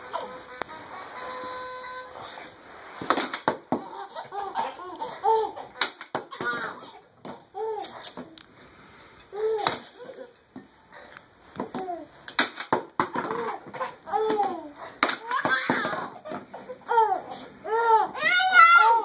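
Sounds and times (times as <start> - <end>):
baby laughing: 0.0 - 0.5, 3.7 - 8.4, 13.1 - 19.0
plastic balls knocking toy hoop: 3.0 - 3.9, 5.8 - 7.4, 11.6 - 16.5.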